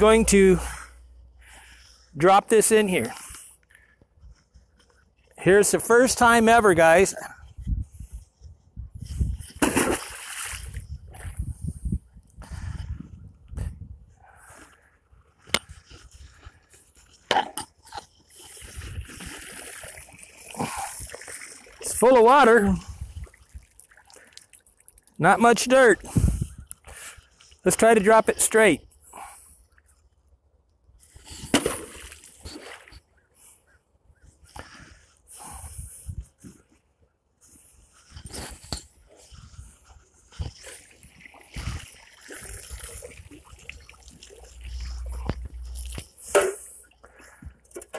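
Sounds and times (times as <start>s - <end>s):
bailer splashing into river: 9.5s - 10.8s
water sloshing: 9.5s - 11.4s, 15.7s - 25.2s, 39.6s - 47.9s.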